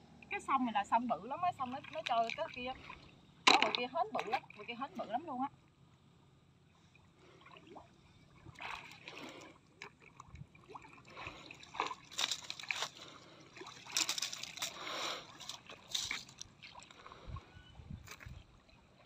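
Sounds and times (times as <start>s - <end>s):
hands splashing in muddy water: 8.5s - 9.5s, 10.7s - 17.2s.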